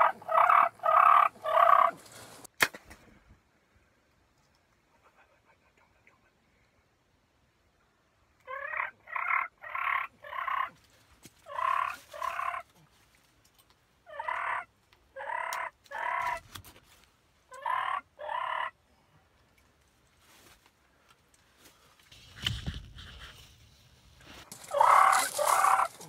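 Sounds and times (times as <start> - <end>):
turkey gobbling: 0.0 - 2.1, 8.5 - 10.7, 11.5 - 12.7, 14.1 - 16.4, 17.5 - 18.8, 24.6 - 26.0.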